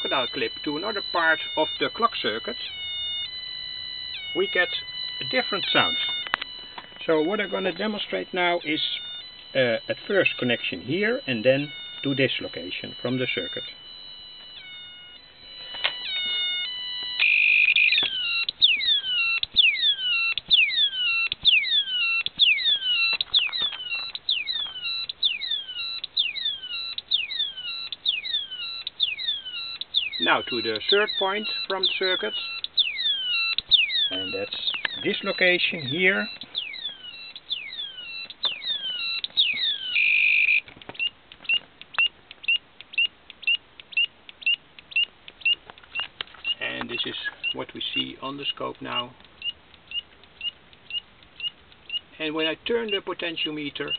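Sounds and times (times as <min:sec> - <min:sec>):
steady high tone: 0:00.0 - 0:28.6, 0:30.1 - 0:40.6
electronic siren chirps: 0:00.0 - 0:53.9.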